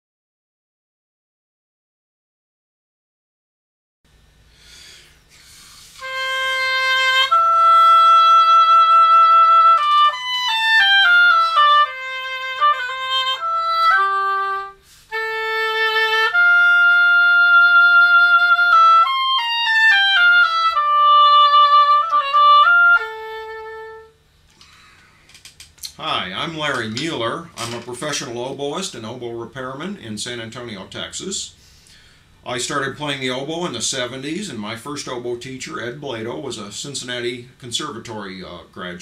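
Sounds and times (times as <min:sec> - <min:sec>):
solo oboe melody: 0:06.0 - 0:24.2.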